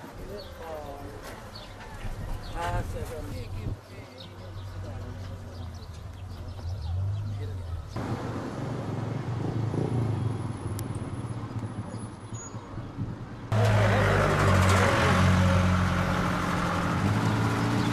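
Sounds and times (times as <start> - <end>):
outdoor noise: 0.0 - 17.9
road noise: 0.0 - 17.9.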